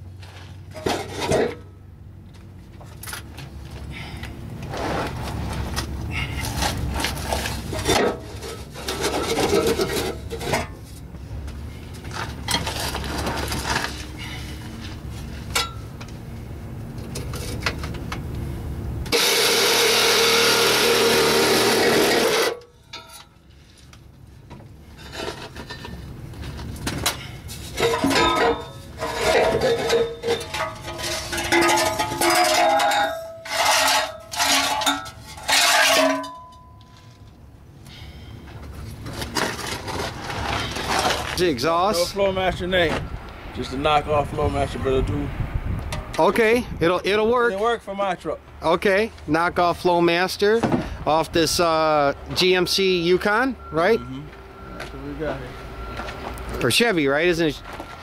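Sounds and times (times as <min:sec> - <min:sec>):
tools scraping on exhaust: 0:00.1 - 0:02.0, 0:02.8 - 0:16.3, 0:16.9 - 0:44.4
power tool running: 0:19.1 - 0:22.6.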